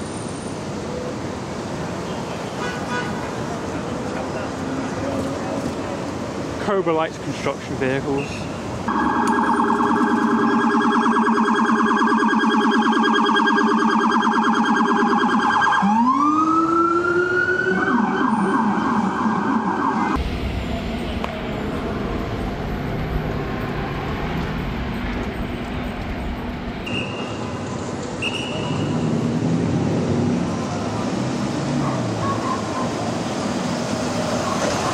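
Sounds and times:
street traffic: 0:00.0 - 0:34.9
emergency siren warbling: 0:08.9 - 0:20.2.

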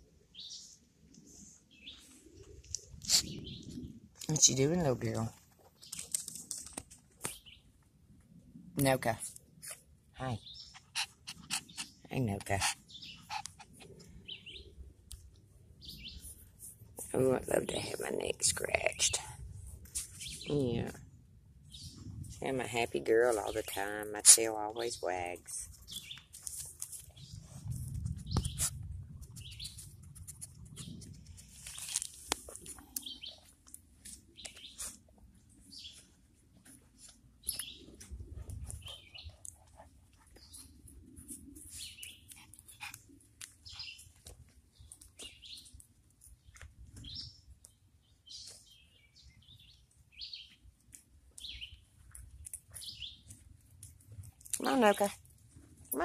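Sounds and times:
small birds chirping: 0:00.0 - 0:06.6, 0:07.2 - 0:07.9, 0:08.8 - 0:19.4, 0:20.0 - 0:56.0
low rumbles on microphone: 0:27.1 - 0:31.6.

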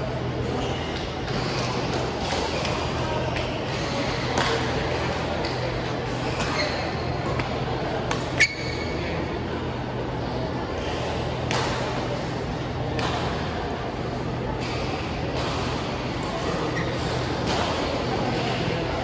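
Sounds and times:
steady low hum: 0:00.0 - 0:19.0
racket hitting shuttlecock: 0:13.0 - 0:13.4.

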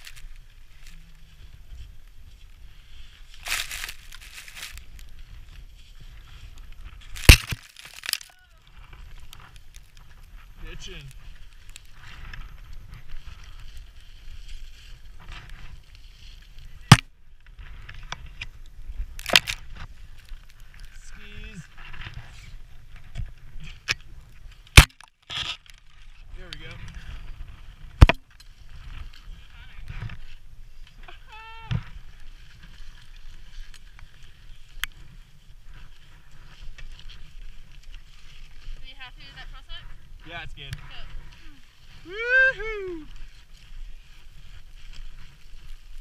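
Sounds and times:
wind rumble on microphone: 0:00.0 - 0:07.3, 0:08.4 - 0:24.8, 0:25.9 - 0:46.0
rope and boots scraping snow: 0:00.0 - 0:08.2, 0:12.9 - 0:16.9, 0:32.0 - 0:42.0, 0:43.2 - 0:46.0.

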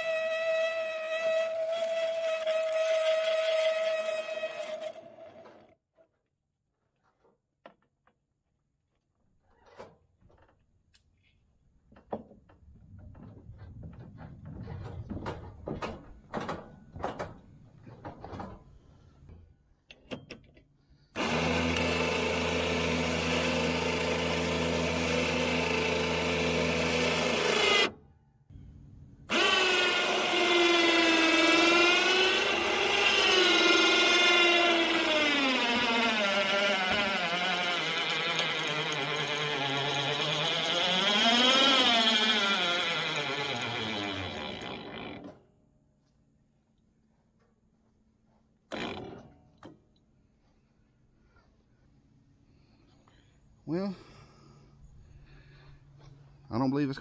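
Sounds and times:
electric winch motor whining: 0:00.0 - 0:05.7, 0:21.2 - 0:27.9, 0:29.3 - 0:45.3.

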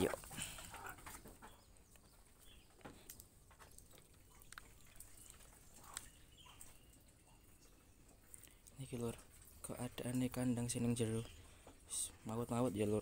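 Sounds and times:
chickens clucking: 0:00.0 - 0:12.7
faint clicks: 0:02.8 - 0:06.7.

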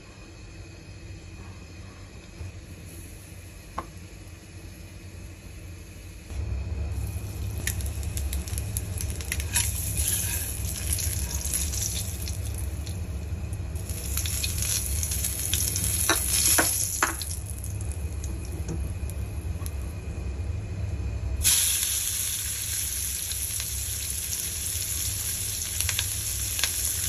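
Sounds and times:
low hum: 0:00.0 - 0:21.5
egg sizzling in oil: 0:07.0 - 0:19.4, 0:21.4 - 0:27.0.

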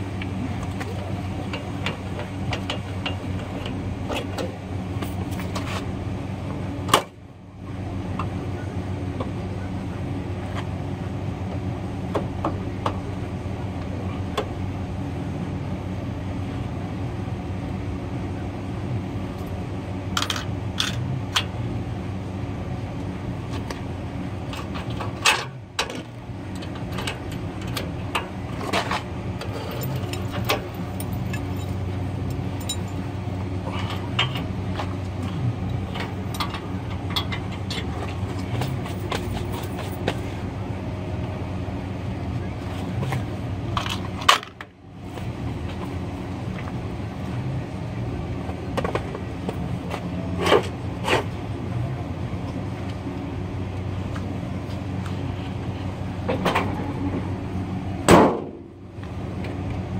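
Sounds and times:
steady low hum: 0:00.0 - 0:59.9
metal hitch chain clanking: 0:20.1 - 0:21.6, 0:24.4 - 0:40.3.

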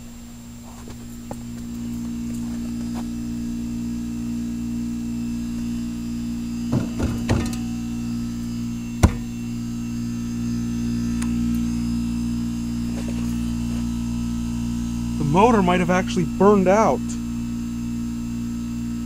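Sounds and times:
heat pump buzzing: 0:00.0 - 0:19.0
knocks: 0:06.7 - 0:07.6, 0:09.0 - 0:09.3.

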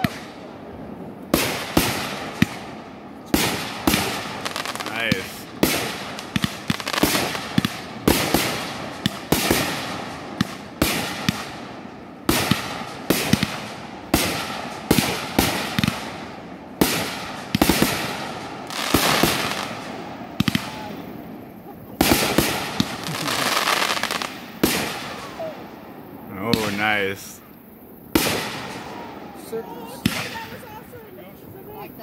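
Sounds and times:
fireworks bursting: 0:00.0 - 0:32.0.

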